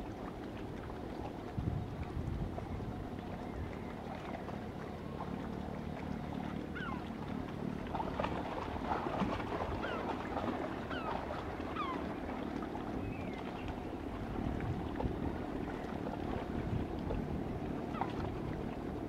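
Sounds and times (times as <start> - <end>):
low engine hum: 0.0 - 19.0
water noise: 0.0 - 19.0
wind: 0.0 - 19.0
bird calling: 6.7 - 7.1, 9.8 - 10.2, 10.8 - 12.1.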